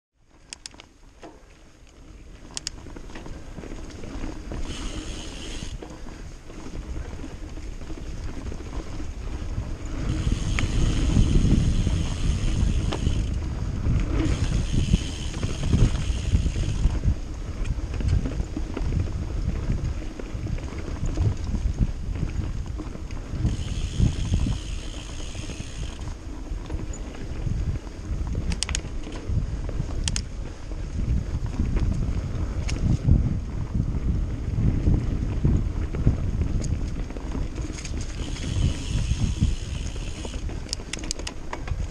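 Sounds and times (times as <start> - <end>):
bike tyres rumbling on dirt: 0.2 - 41.9
freewheel buzzing: 4.0 - 5.8, 9.3 - 17.1, 23.2 - 26.3, 37.6 - 41.3.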